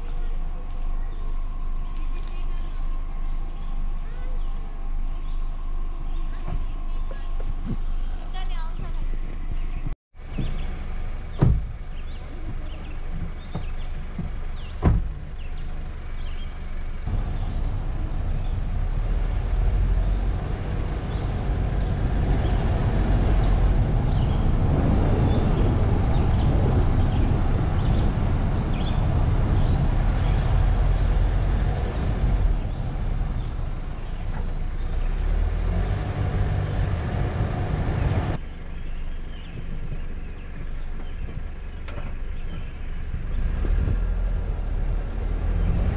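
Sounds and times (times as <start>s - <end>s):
car engine rumble: 0.0s - 45.9s
road and wind noise: 0.0s - 45.9s
thump: 11.4s - 11.8s, 13.5s - 15.2s.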